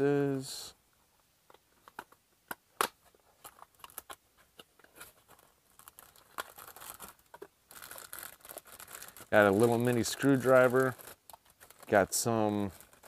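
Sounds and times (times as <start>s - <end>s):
plastic bag crinkling: 4.8s - 13.0s.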